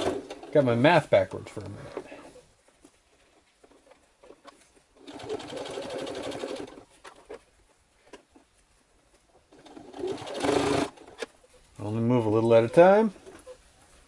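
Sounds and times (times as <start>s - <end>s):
sewing machine stitching leather: 0.0s - 0.6s, 3.6s - 6.9s, 9.5s - 11.3s.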